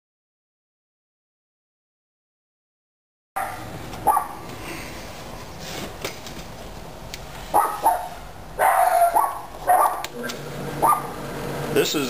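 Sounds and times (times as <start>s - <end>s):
dog barking: 3.4s - 4.4s, 7.5s - 10.2s, 10.8s - 11.2s.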